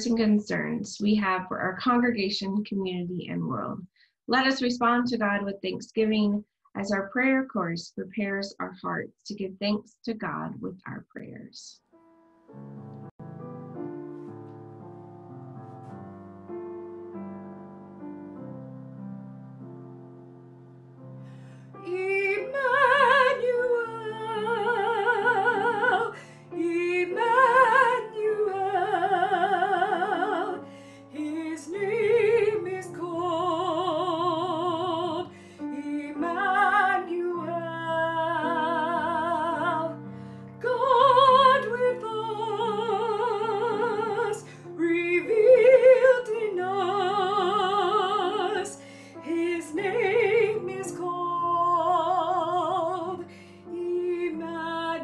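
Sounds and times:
piano accompaniment: 11.8 - 55.0
woman singing with vibrato: 21.9 - 40.0, 40.6 - 55.0.

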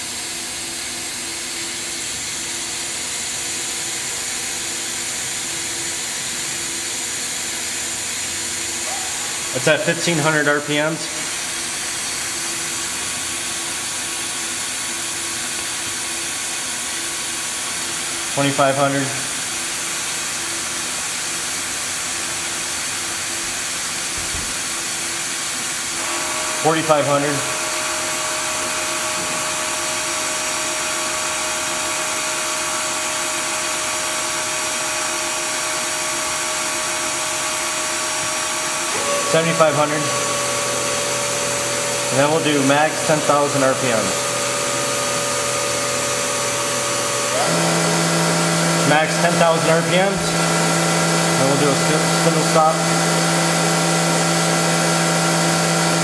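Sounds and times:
machine spindle whirring: 26.0 - 56.0.

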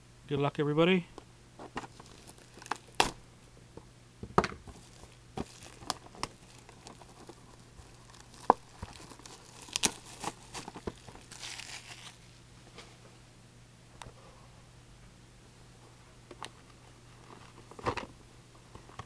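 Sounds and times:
shrink wrap tearing and crinkling: 1.8 - 3.2, 4.7 - 12.4.

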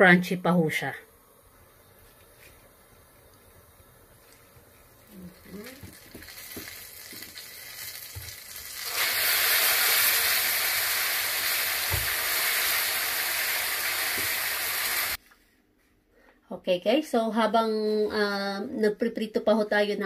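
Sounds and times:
chicken wings sizzling in oil: 4.1 - 15.2.

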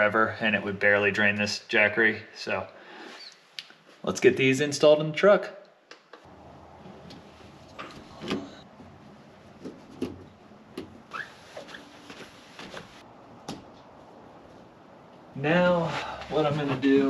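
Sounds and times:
handling knocks and rustles: 6.9 - 15.2
short squeak: 11.1 - 12.0.

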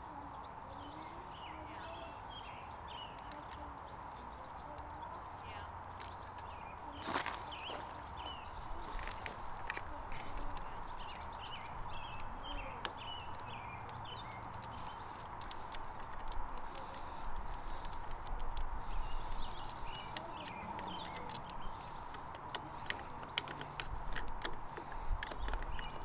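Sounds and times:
small birds chirping: 0.0 - 26.0
screwdriver clicking on metal screws: 3.0 - 6.7, 9.4 - 26.0.

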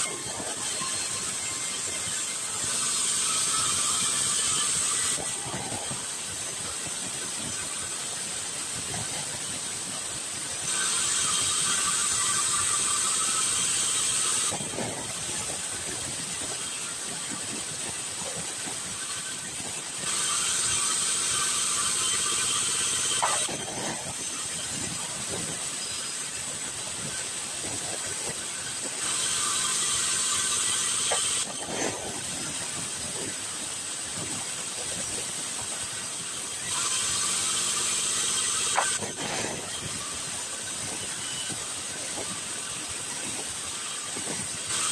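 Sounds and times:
band saw cutting wood: 0.0 - 7.9, 8.8 - 33.4, 36.0 - 44.9.

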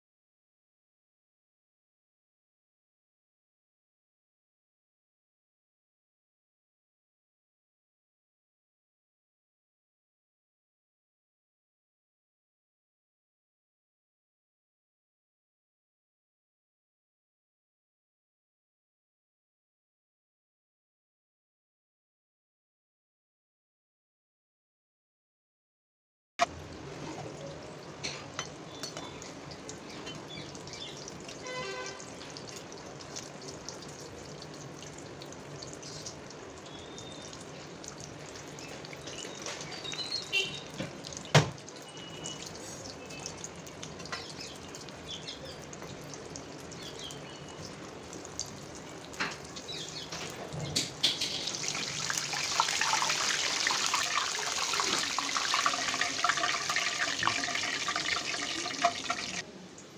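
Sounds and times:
food deep-frying in oil: 26.4 - 59.9.

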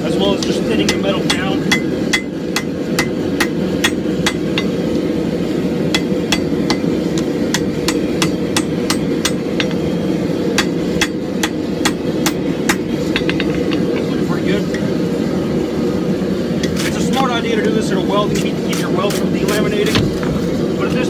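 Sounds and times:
steady low hum: 0.0 - 21.0
hammer striking hot steel on anvil: 0.2 - 5.1, 5.8 - 14.9.

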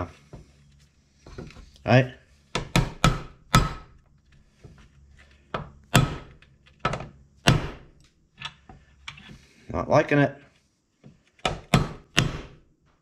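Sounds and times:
hammer striking metal: 2.6 - 3.9.

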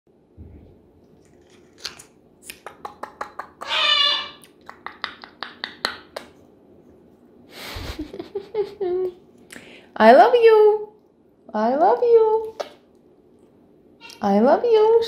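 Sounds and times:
parrot beak clicks: 2.4 - 3.8
parrot warbling call: 3.6 - 4.4.

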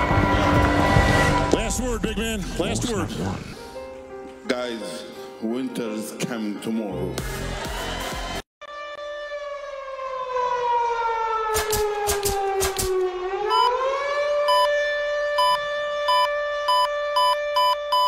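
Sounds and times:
wailing siren-like tone: 8.6 - 18.0
sharp clicks: 11.5 - 13.0.

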